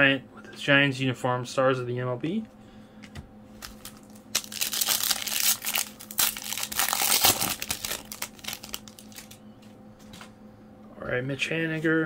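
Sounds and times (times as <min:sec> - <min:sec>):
plastic wrapper crinkling: 0:03.6 - 0:09.4.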